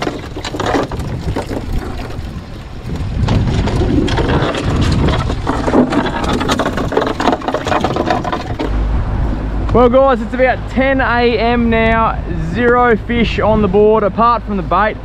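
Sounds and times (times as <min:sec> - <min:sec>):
knocks and slaps of fish: 0:00.0 - 0:08.8
sea noise: 0:00.0 - 0:15.0
wind buffeting microphone: 0:00.0 - 0:15.0.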